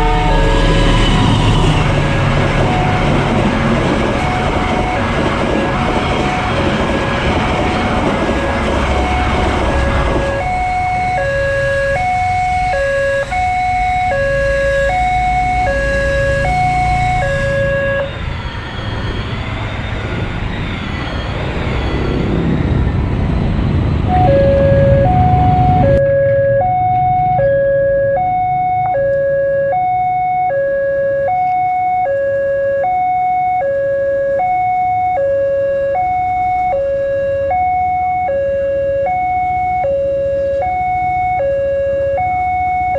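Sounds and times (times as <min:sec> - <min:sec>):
motorbike engines passing: 0:00.0 - 0:18.3, 0:18.9 - 0:30.4
level crossing two-tone alarm: 0:00.0 - 0:19.6, 0:24.1 - 0:42.9
passing train rumble: 0:00.0 - 0:42.9.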